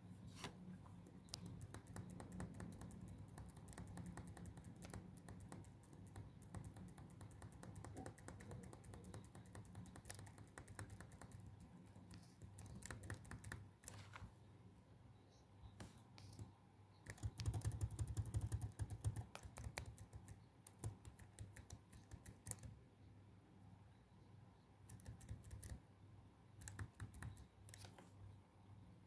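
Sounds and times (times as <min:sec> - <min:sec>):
keyboard typing: 0:01.0 - 0:14.2, 0:16.2 - 0:22.8, 0:24.9 - 0:25.8, 0:26.6 - 0:28.0.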